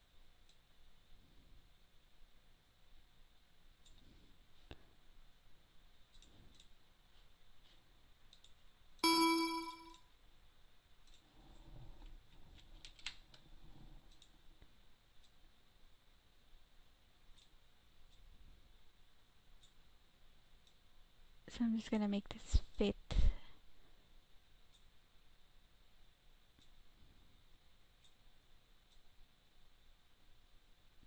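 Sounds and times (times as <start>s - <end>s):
computer mouse clicks: 0.4s - 0.6s, 3.8s - 4.1s, 6.1s - 6.8s, 8.3s - 8.6s, 11.0s - 13.5s, 14.1s - 15.4s, 17.3s - 18.3s, 26.5s - 26.8s, 28.0s - 28.2s
computer alert chime: 9.0s - 10.0s.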